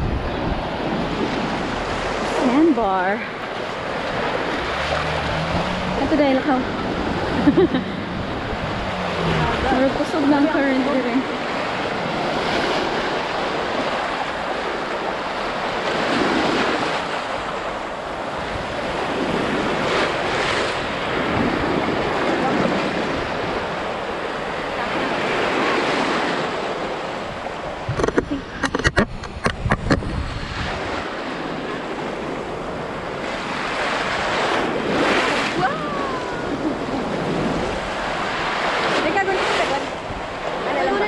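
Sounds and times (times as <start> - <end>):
surf washing in: 0.0 - 41.0
wind on microphone: 0.0 - 41.0
sharp knocks and thumps: 27.9 - 30.1.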